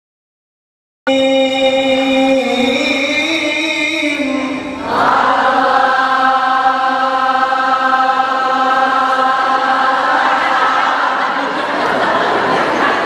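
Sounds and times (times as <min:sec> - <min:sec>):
man chanting into microphone: 0:01.1 - 0:04.9.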